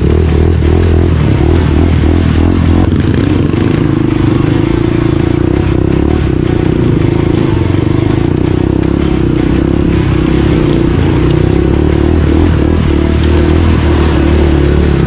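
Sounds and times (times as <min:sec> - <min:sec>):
dirt bike engine running: 0:00.0 - 0:15.0
bike riding through water: 0:12.1 - 0:15.0.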